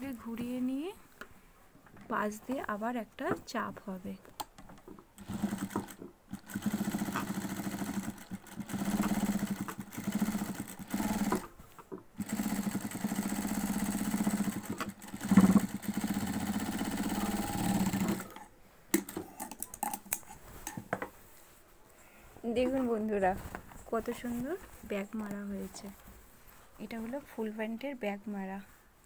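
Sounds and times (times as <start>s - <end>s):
sewing machine stitching: 5.2s - 11.6s, 12.2s - 18.4s.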